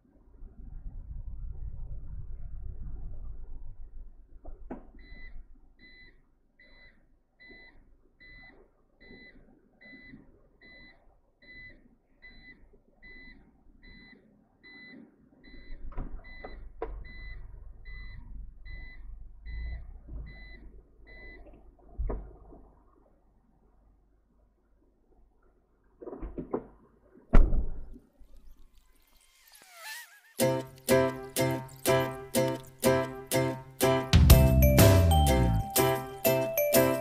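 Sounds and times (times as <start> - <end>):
low rumble: 0.2 - 4.4
reversing beeper: 34.4 - 37.0.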